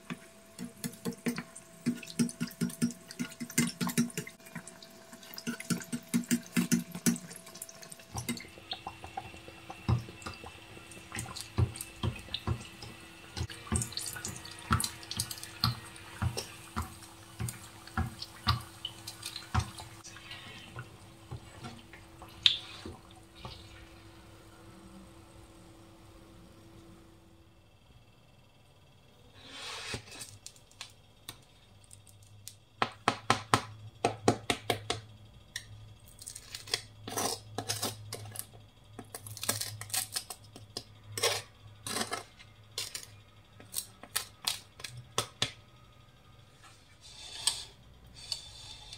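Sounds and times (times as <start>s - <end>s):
oil sizzling with crackles and pops: 0.0s - 27.0s.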